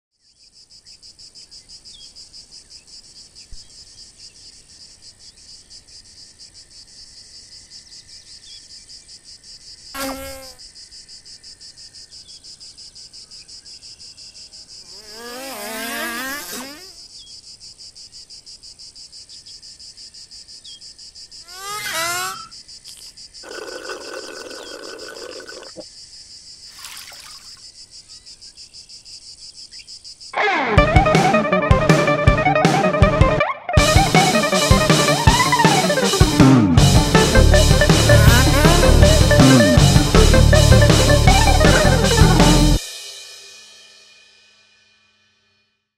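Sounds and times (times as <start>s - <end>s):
insects chirring: 0.2s - 30.7s.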